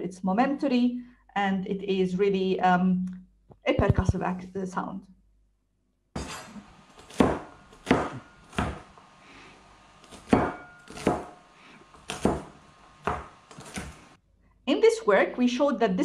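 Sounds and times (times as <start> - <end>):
knife chopping on plastic board: 6.2 - 9.0, 10.0 - 14.1.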